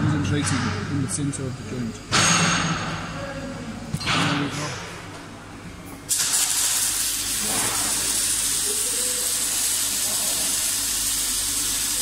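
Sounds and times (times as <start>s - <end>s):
loud steady hiss: 6.1s - 12.0s.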